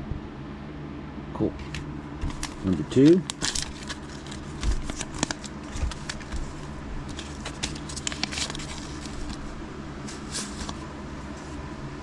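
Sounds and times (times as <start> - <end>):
wrapper tearing and crinkling: 2.2 - 10.8.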